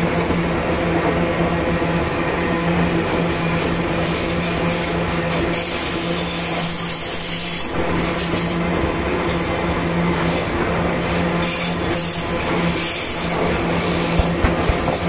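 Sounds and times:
freight train wheels rumbling: 0:00.0 - 0:15.0
high-pitched wheel squeal: 0:03.6 - 0:08.4.

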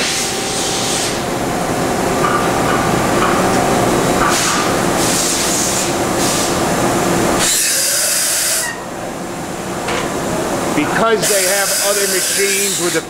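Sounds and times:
machine running noise: 0:00.0 - 0:13.0
coolant spray hissing: 0:11.0 - 0:13.0.

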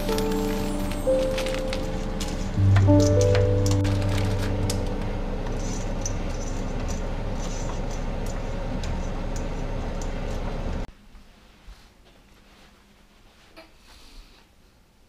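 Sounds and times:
background music: 0:00.0 - 0:06.4.

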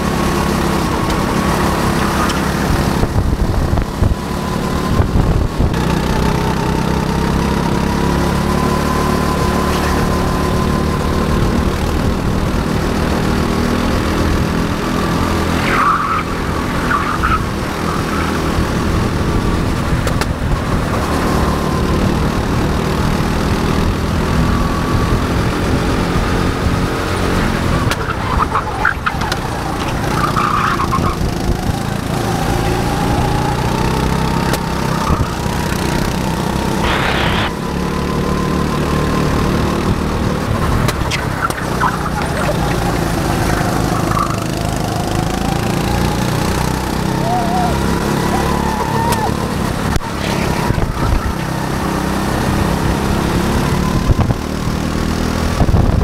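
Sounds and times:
go-kart engine running hard: 0:00.0 - 0:56.0
thin whine: 0:36.8 - 0:37.7
short high squeals: 0:47.1 - 0:51.5.

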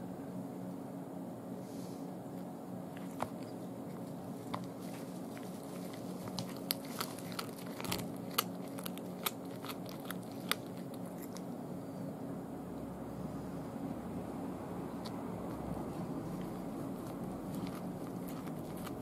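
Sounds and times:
cat chewing with sharp crunches: 0:02.9 - 0:11.6, 0:14.6 - 0:19.0.

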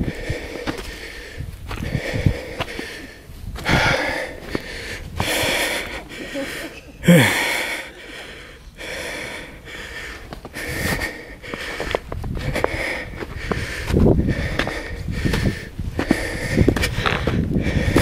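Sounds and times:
person breathing heavily: 0:00.0 - 0:18.0
person sighing: 0:06.1 - 0:07.9.

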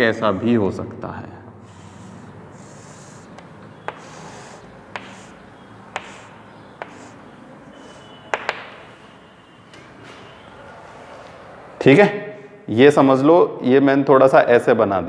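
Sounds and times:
chalk tapping on a chalkboard: 0:01.7 - 0:09.0.

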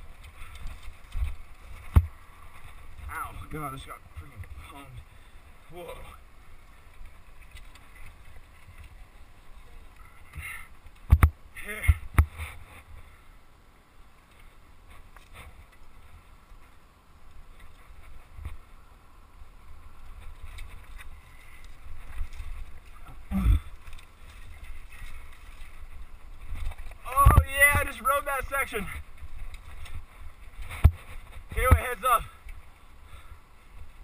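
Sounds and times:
bike knocking on rocks: 0:10.3 - 0:12.4, 0:26.6 - 0:28.0, 0:30.6 - 0:32.3.

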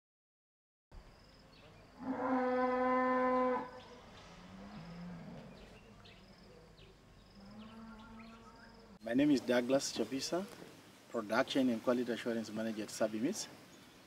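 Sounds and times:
faint insect chirps: 0:01.0 - 0:09.1
cattle mooing: 0:02.0 - 0:03.8, 0:04.4 - 0:05.7, 0:07.4 - 0:09.0.

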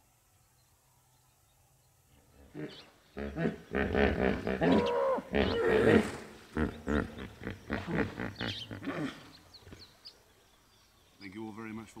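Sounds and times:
hippopotamus calling: 0:02.4 - 0:09.8.

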